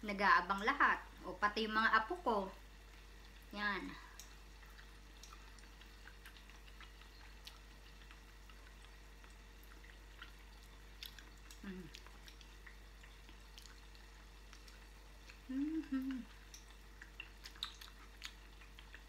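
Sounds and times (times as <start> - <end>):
low electrical hum: 0.0 - 19.0
person chewing crispy food: 2.8 - 19.0
person humming mm: 11.6 - 12.0, 15.4 - 16.3
mouth and finger clicks: 15.5 - 19.0.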